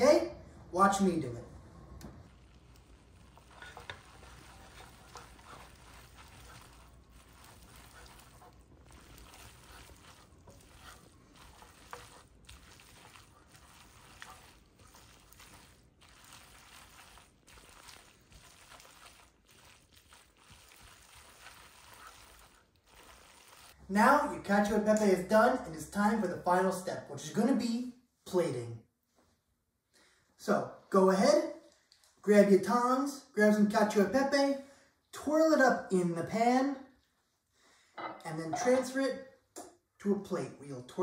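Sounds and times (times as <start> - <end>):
light sizzle: 0.4 - 25.6
soft stirring in a pan: 0.4 - 26.9.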